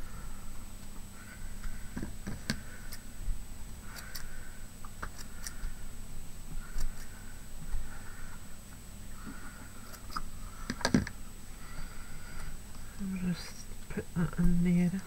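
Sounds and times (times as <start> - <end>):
scissors snipping: 3.9 - 4.3.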